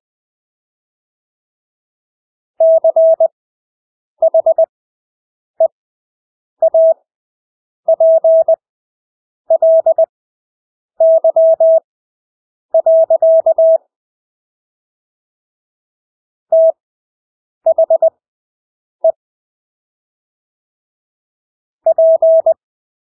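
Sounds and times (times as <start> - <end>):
morse code beeps: 2.6 - 3.3, 4.2 - 4.7, 6.6 - 7.0, 7.9 - 8.6, 9.5 - 10.1, 11.0 - 11.8, 12.8 - 13.8, 16.5 - 16.8, 17.7 - 18.1, 21.9 - 22.6.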